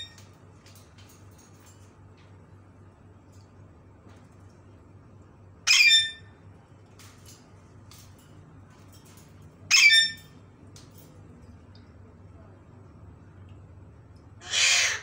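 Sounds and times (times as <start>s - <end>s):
parakeet screeching: 5.7s - 6.3s, 9.7s - 10.2s, 14.4s - 15.0s.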